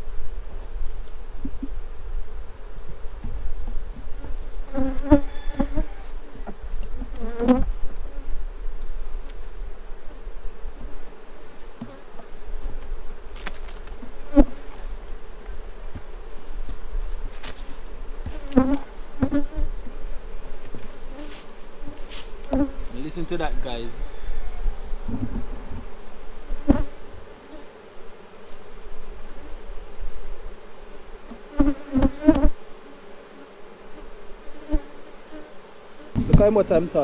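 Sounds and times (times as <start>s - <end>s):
bees buzzing: 0.0s - 37.0s
wooden hive frames knocking: 36.1s - 36.8s.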